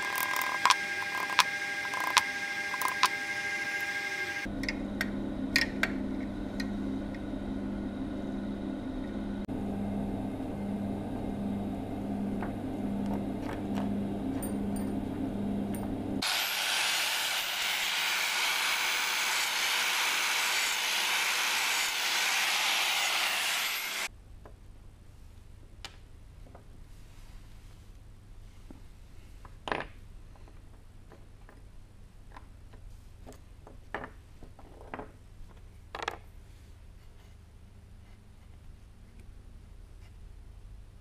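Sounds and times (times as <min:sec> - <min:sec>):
low pulsing hum: 0:04.4 - 0:16.2
power tool hissing: 0:16.2 - 0:24.1.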